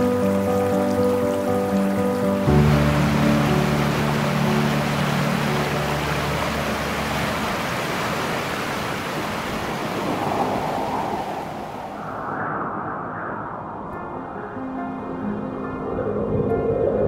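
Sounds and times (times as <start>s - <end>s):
background music: 0.0s - 7.6s, 14.0s - 17.0s
stream rushing over rocks: 0.0s - 12.0s.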